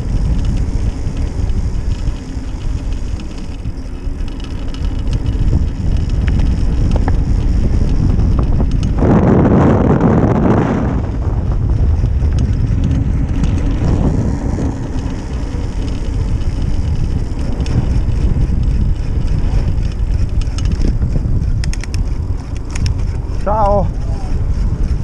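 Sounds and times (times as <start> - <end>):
sharp clicks or rattles: 0.0 - 9.1, 11.6 - 25.0
bike tyre rumble on trail: 0.0 - 25.0
wind across microphone: 0.0 - 25.0.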